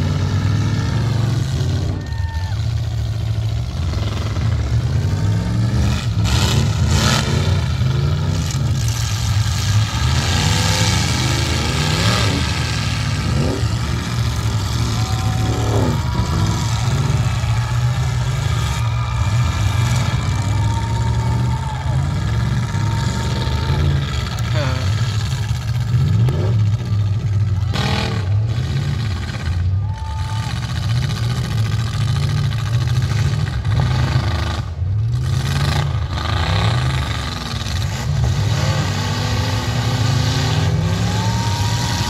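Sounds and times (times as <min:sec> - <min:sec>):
car engines revving: 0:00.0 - 0:42.0.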